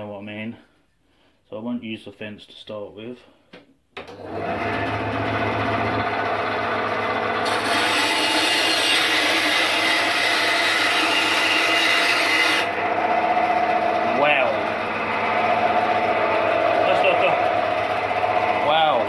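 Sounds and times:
bandsaw humming: 4.1 - 19.0
saw blade cutting wood: 7.4 - 14.7.

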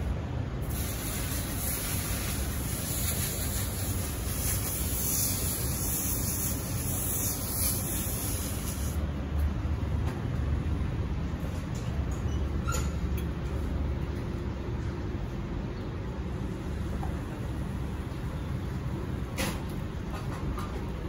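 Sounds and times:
bright high hiss: 0.6 - 9.0
even hiss: 0.6 - 9.0.

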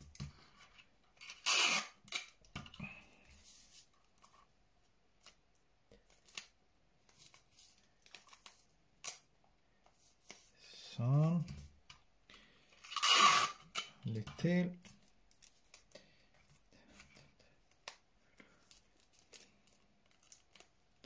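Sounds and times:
paper rustling and crinkling: 17.7 - 21.0.

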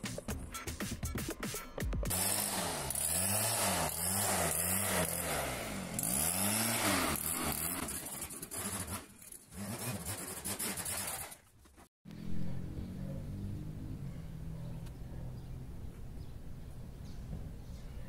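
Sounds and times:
leaf blower running: 2.1 - 9.0.

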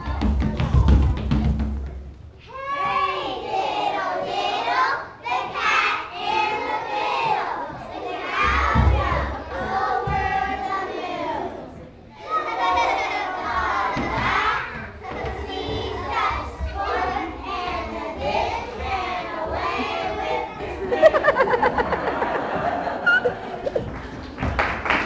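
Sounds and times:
children shouting together: 2.4 - 6.8.

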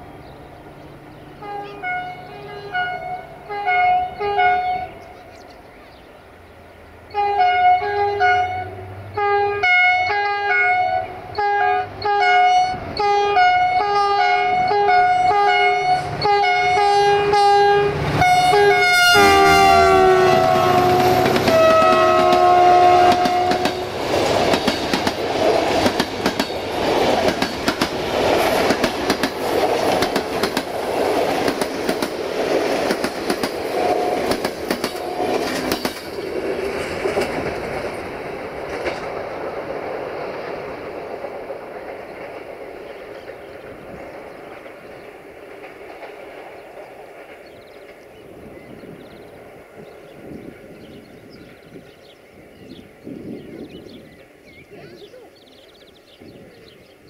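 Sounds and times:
locomotive air horn blasts: 1.4 - 5.0, 7.1 - 24.0
wheels clicking over rail joints: 20.2 - 48.8.

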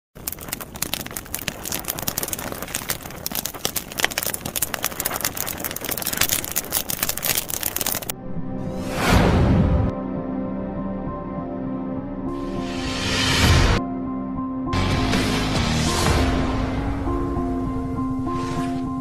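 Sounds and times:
fire crackling and popping: 0.0 - 8.1.

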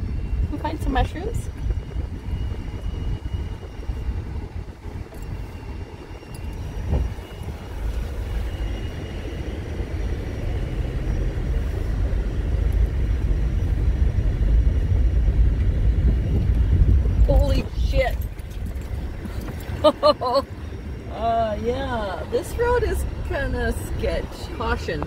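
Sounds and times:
tyres and engine rumbling on gravel: 0.0 - 25.0.

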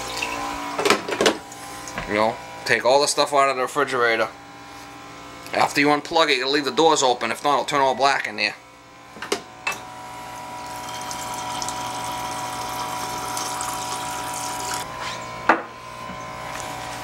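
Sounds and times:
water dispenser rushing into mug: 10.6 - 14.8.

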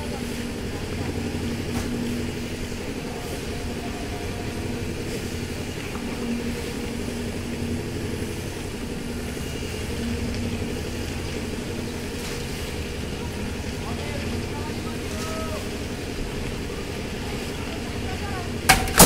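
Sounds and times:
concrete mixer engine droning: 0.0 - 19.0.

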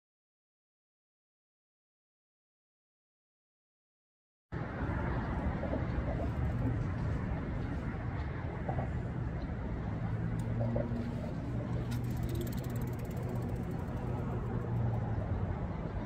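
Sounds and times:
low outdoor rumble: 4.6 - 16.0
bicycle freewheel ticking: 11.8 - 15.0.

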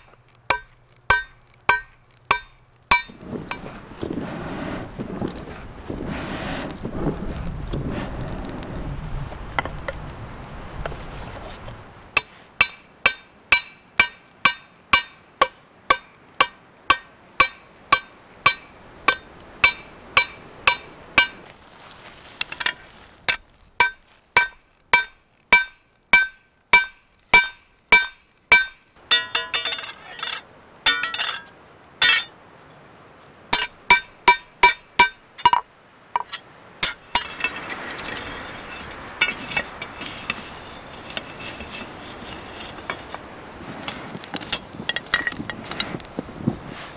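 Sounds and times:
steady rushing noise: 2.9 - 12.3.

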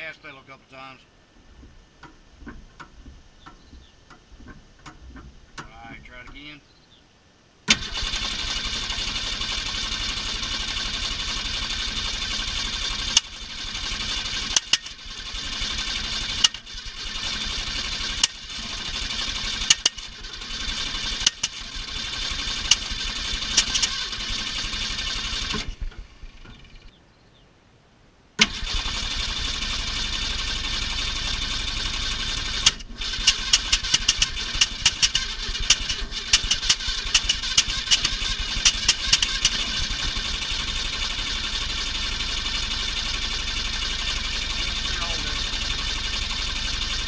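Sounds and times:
sharp cracks: 7.7 - 26.6, 32.4 - 42.6
starter cranking engine: 7.7 - 26.9, 28.4 - 47.0.

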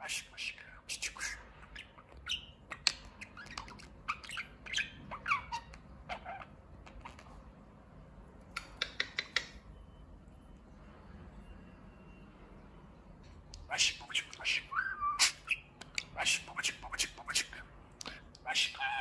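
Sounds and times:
budgerigar chattering: 1.0 - 7.4, 8.6 - 9.6, 13.6 - 19.0
bird clicks: 8.5 - 9.6.

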